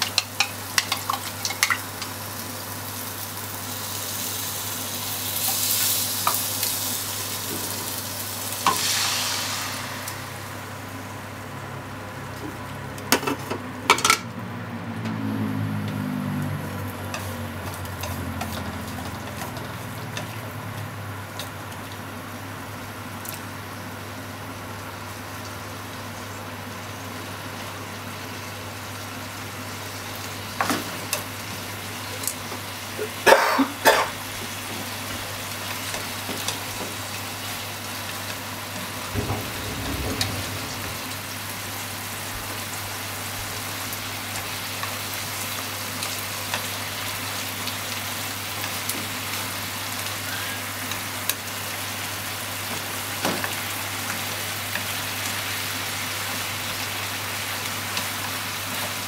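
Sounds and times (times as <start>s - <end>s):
chopsticks clicking against a pan: 0.0s - 2.1s
meat and onion sizzling in a pan: 0.0s - 12.8s, 16.4s - 59.0s
steady low hum: 7.4s - 12.4s.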